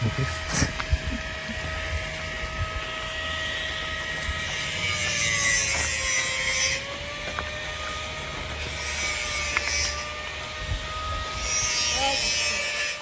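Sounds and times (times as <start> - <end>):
small motor humming: 0.0 - 13.0.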